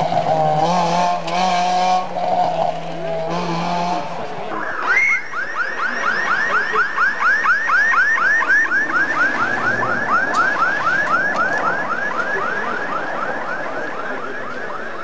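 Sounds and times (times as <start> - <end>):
car engine and road noise: 0.0 - 15.0
electronic yelp siren: 3.5 - 15.0.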